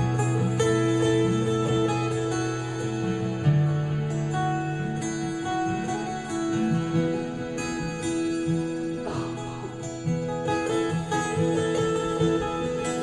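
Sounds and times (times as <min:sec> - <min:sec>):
acoustic guitar playing: 0:00.0 - 0:13.0.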